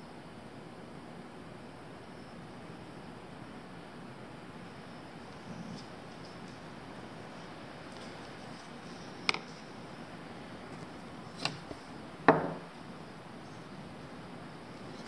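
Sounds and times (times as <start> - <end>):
faint room hiss: 0.0 - 15.0
tools knocking on workbench: 12.3 - 12.7.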